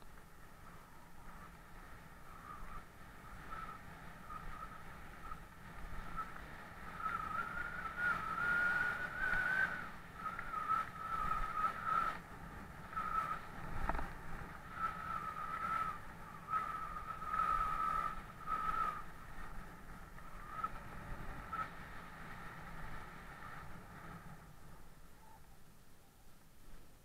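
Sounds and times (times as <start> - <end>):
bike tyres rumbling on gravel: 3.4 - 24.3.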